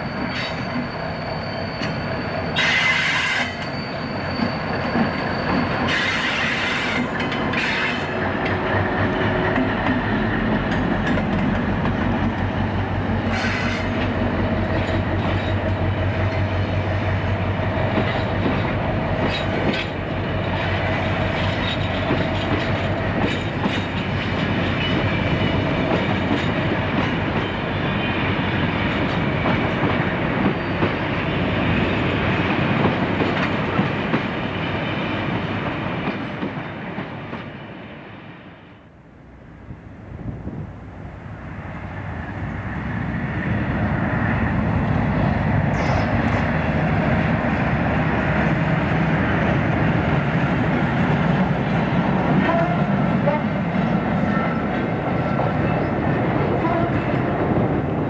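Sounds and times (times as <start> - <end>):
diesel locomotive engine drone: 0.0 - 58.0
train wagons clattering over rail joints: 2.6 - 12.7, 13.3 - 16.6, 17.8 - 20.1, 21.3 - 27.6.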